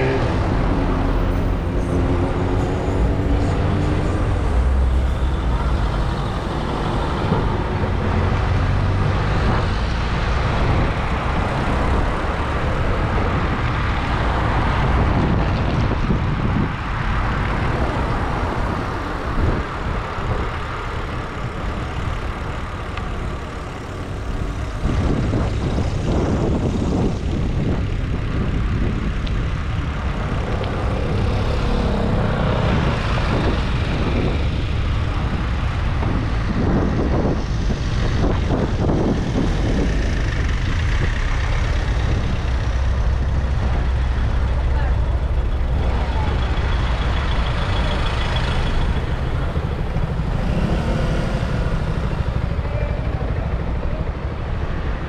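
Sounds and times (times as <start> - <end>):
traffic rumble: 0.0 - 55.0
loud vehicle passing: 24.0 - 55.0.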